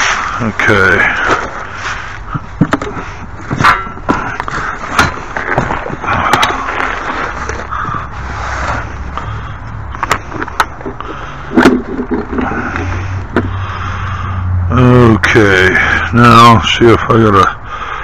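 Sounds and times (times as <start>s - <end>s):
hands rummaging metal hardware: 0.0s - 7.7s, 10.0s - 13.5s.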